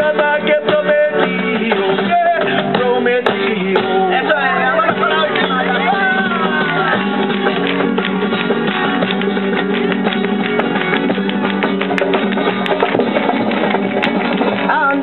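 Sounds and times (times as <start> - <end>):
acoustic guitar strumming: 0.0 - 15.0
handclaps keeping time: 4.7 - 15.0.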